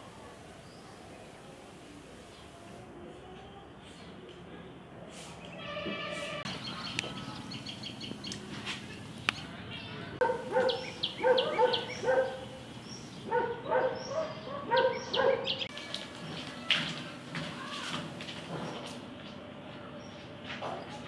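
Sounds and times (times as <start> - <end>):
faint high chirping: 6.4 - 15.7.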